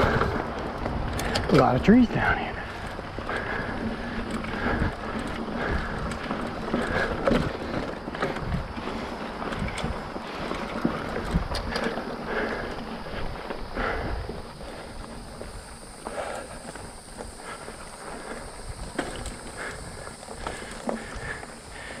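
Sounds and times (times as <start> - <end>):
mountain bike rolling and rattling: 0.0 - 22.0.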